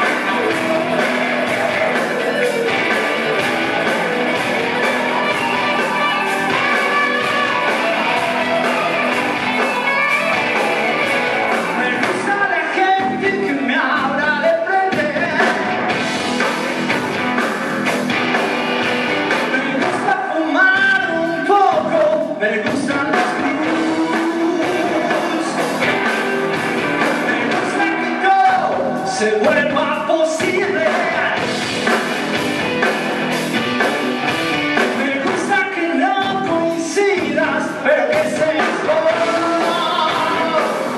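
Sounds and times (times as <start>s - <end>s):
person singing: 0.0s - 15.9s, 19.3s - 31.5s, 34.8s - 40.9s
electric guitars: 0.0s - 40.9s
live rock band: 0.0s - 40.9s.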